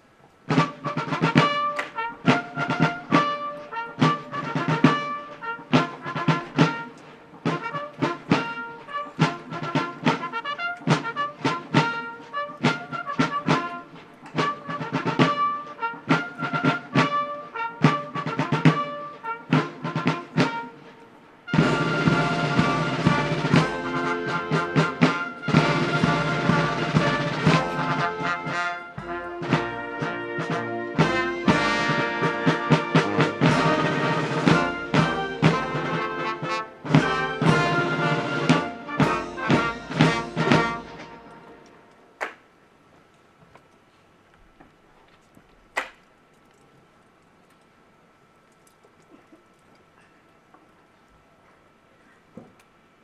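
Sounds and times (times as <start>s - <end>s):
military band playing a march: 0.4s - 42.3s.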